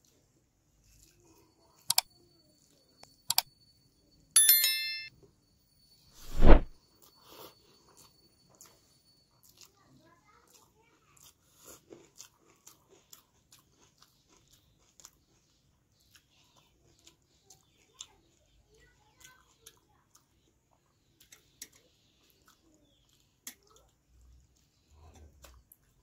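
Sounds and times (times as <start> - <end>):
close-up chewing and mouth clicks: 8.0 - 26.0.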